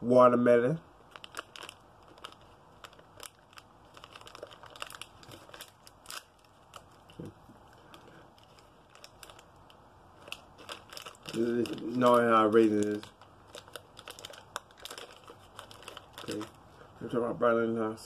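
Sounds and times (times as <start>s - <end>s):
snack pouch crinkling and tearing: 1.0s - 17.0s.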